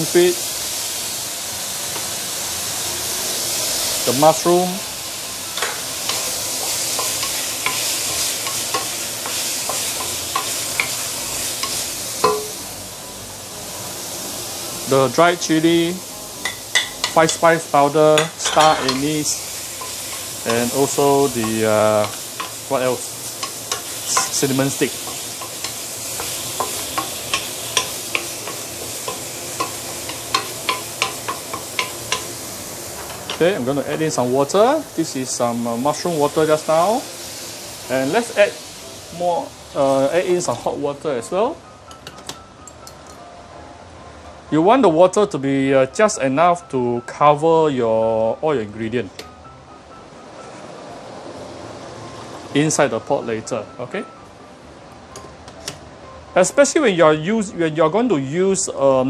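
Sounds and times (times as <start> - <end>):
food sizzling in hot oil: 0.0 - 43.2, 50.6 - 53.9.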